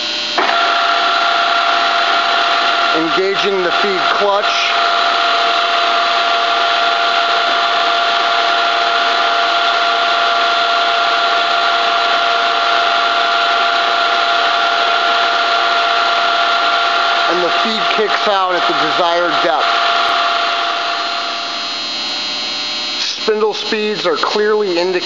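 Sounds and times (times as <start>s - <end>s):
drill press hum and whine: 0.0s - 25.0s.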